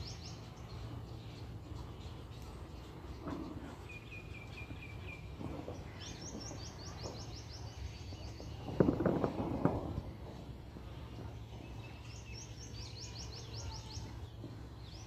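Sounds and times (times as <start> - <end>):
small birds chirping: 0.0 - 15.0
knocks and rattling: 8.4 - 10.9.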